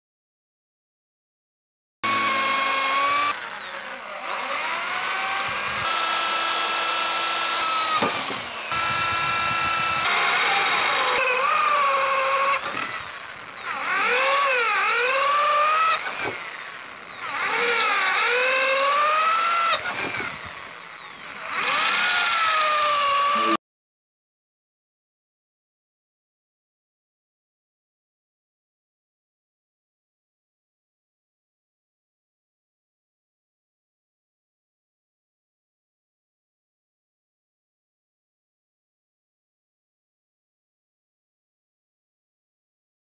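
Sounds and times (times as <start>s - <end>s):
electric drill boring into metal: 2.0s - 23.6s.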